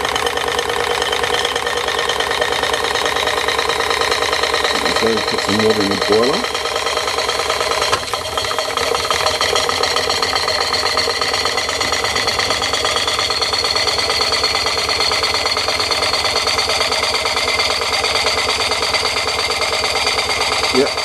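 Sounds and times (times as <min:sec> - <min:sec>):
toy steam engine running: 0:00.0 - 0:21.0.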